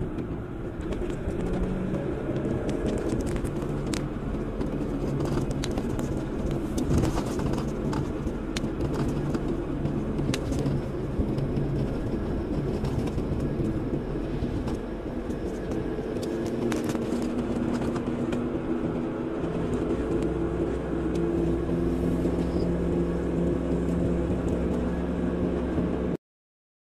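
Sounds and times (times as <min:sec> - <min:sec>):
car engine and road noise: 0:00.0 - 0:26.2.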